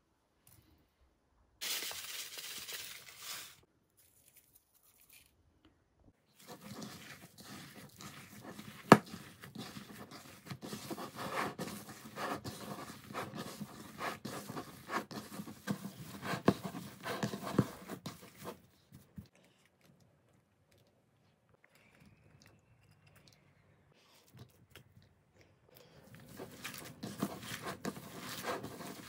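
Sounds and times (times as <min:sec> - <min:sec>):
minced meat squishing: 0:06.3 - 0:10.6.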